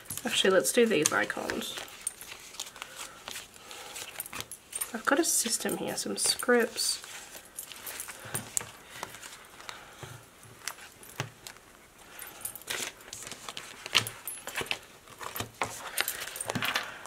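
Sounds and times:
paper sheets rustling: 0:00.0 - 0:04.5.

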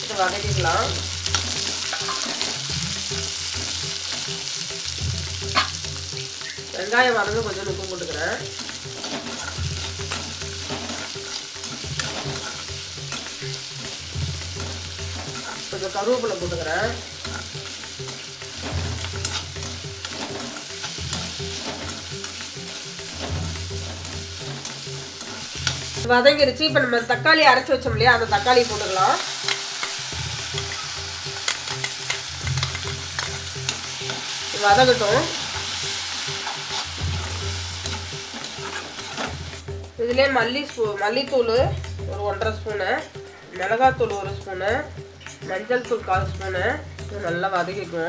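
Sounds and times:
metal spatula scraping pan: 0:00.0 - 0:26.1, 0:28.2 - 0:39.6
onions sizzling in oil: 0:00.0 - 0:48.0.

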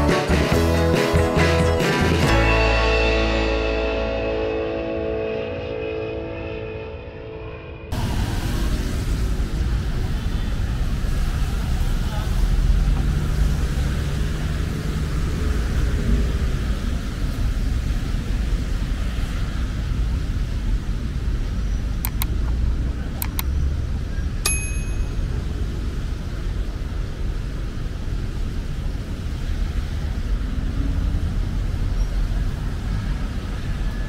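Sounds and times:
sharp clicks: 0:22.0 - 0:22.4, 0:23.2 - 0:23.5
metallic ding: 0:24.4 - 0:25.3.

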